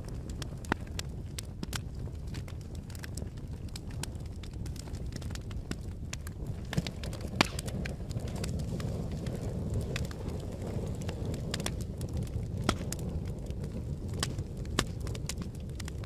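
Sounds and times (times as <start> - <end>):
campfire flames rumbling: 0.0 - 16.0
fire popping and snapping: 0.0 - 16.0.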